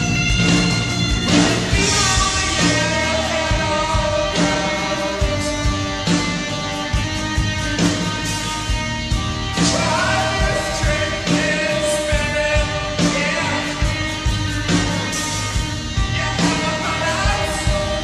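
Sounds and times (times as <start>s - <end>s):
steady drum beat: 0.0s - 18.0s
person singing: 1.2s - 6.4s, 9.6s - 18.0s.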